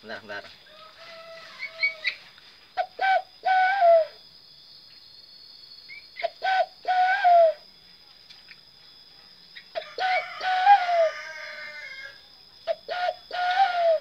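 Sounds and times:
hand-blown dove call: 0:02.8 - 0:04.2, 0:06.2 - 0:07.6, 0:12.7 - 0:14.0.

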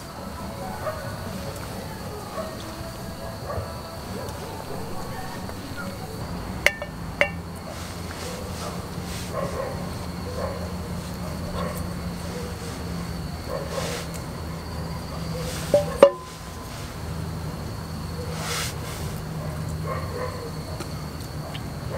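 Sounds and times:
steady low hum: 0:00.0 - 0:21.9
soft handling sounds: 0:04.2 - 0:14.5, 0:15.2 - 0:17.2
metal cup clinking on pot: 0:06.6 - 0:07.5, 0:15.7 - 0:16.4.

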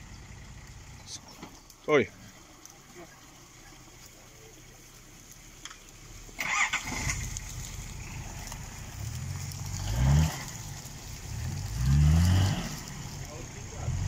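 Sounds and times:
vehicle engine starting and revving: 0:06.0 - 0:14.0.

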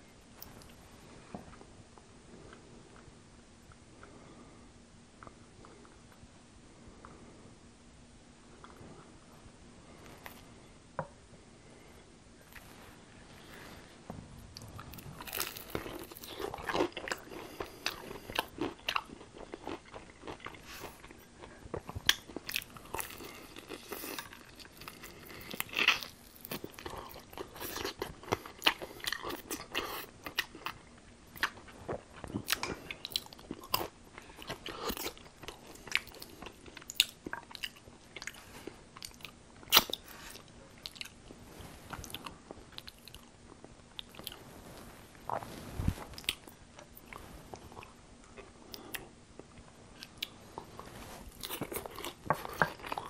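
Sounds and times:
chewing: 0:14.5 - 0:44.4, 0:45.3 - 0:53.0.

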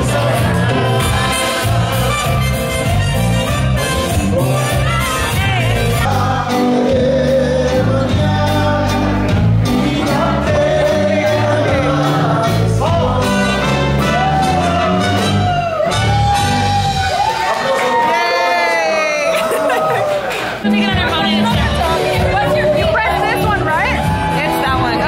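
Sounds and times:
bass line and beat: 0:00.0 - 0:17.2, 0:20.6 - 0:25.0
song with singing voice: 0:00.0 - 0:17.2.

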